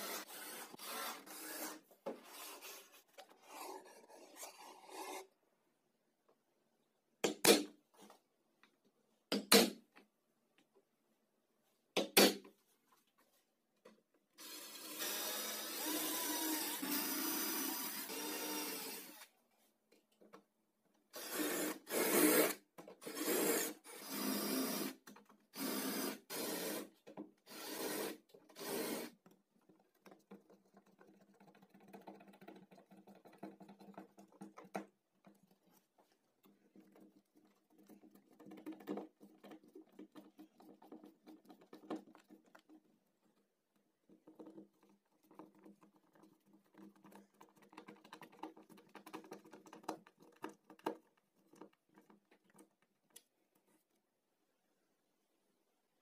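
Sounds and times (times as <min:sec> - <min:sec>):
electric drill boring into metal: 0:14.4 - 0:19.2.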